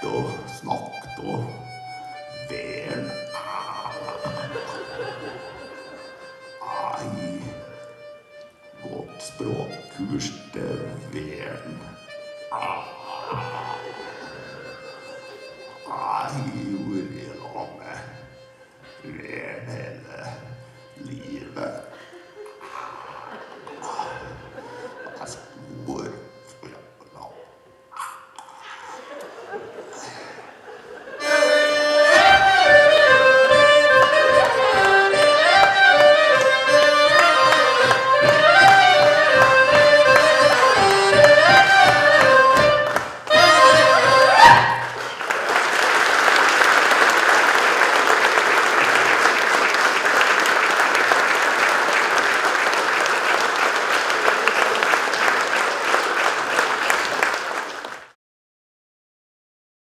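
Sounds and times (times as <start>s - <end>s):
band with saxophone and accordions: 0.0s - 55.4s
audience applauding: 3.0s - 7.8s, 28.7s - 58.2s.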